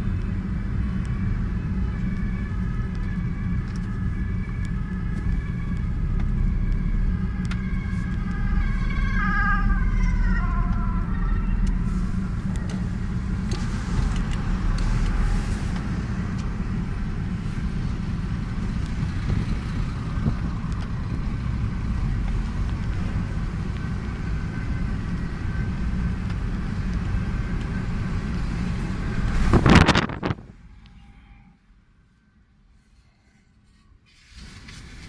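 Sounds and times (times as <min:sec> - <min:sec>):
car cabin road rumble: 0:00.0 - 0:32.0, 0:33.5 - 0:35.0
loud rush of noise: 0:28.8 - 0:30.6.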